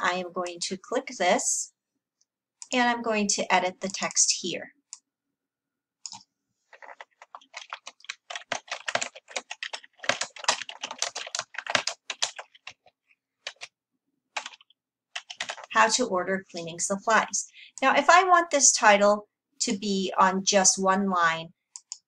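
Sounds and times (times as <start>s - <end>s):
typing on a computer keyboard: 6.1s - 13.7s, 14.4s - 15.9s, 21.8s - 22.0s.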